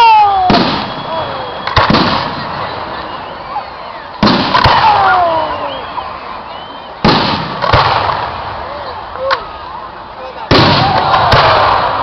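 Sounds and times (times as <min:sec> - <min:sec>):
crowd chatter and exclamations: 0:00.0 - 0:12.0
fireworks bursting with bangs: 0:00.1 - 0:03.3, 0:04.1 - 0:06.0, 0:07.0 - 0:08.6, 0:10.4 - 0:12.0.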